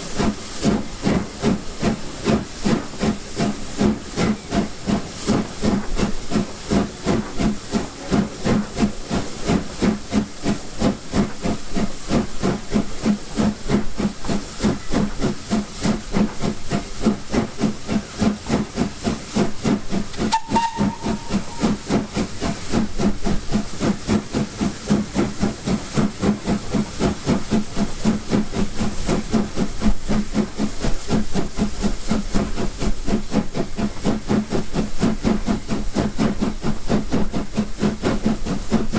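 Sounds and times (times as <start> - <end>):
steam hiss: 0.0 - 38.9
steam locomotive chuffing: 0.0 - 38.9
short high tone: 20.3 - 21.6.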